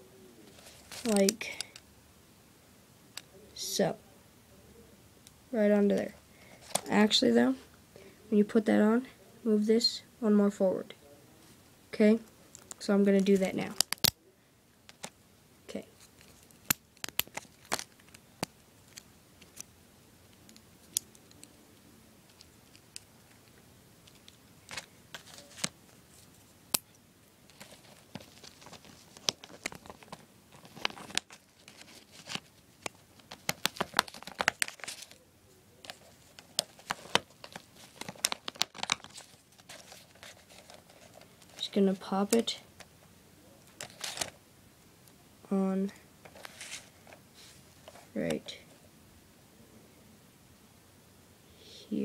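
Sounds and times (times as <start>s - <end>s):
plastic pieces clicking and rattling: 27.5s - 35.2s
plastic rubbing: 27.5s - 35.2s, 35.8s - 41.8s.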